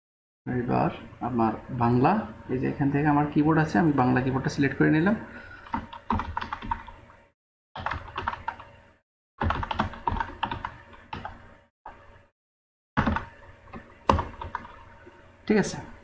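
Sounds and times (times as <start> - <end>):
computer keyboard typing: 5.6 - 7.0, 7.8 - 8.7, 9.4 - 11.4, 13.0 - 14.8.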